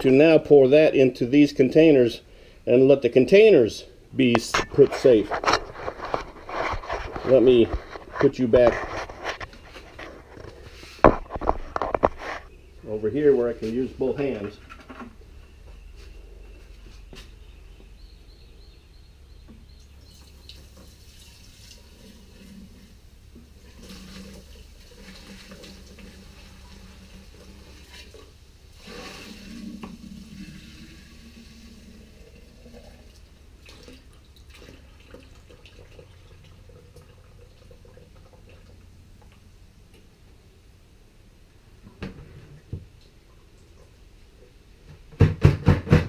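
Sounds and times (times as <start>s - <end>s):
liquid pouring into plastic containers: 20.0s - 39.4s.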